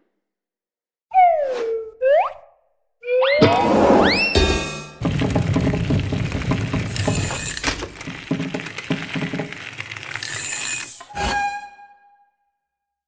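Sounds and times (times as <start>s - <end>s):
bicycle chain ratcheting and clicking: 5.0s - 11.1s
metal rattling: 5.0s - 11.1s
metallic clatter: 5.0s - 11.4s.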